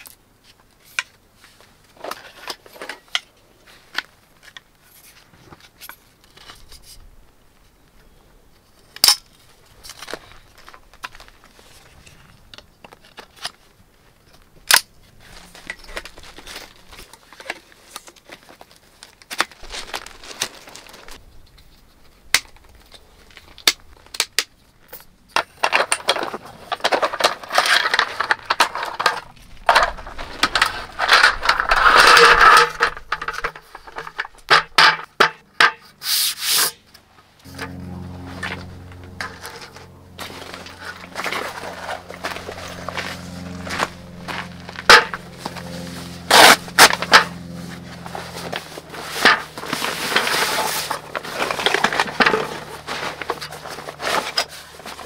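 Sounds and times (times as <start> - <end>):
metal poles clicking and knocking: 23.6 - 35.9, 44.8 - 45.3.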